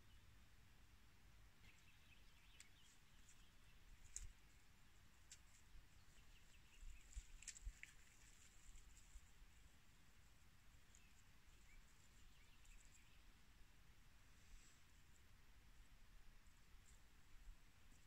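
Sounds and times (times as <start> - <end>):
faint clicks: 1.7 - 5.7, 6.7 - 9.3.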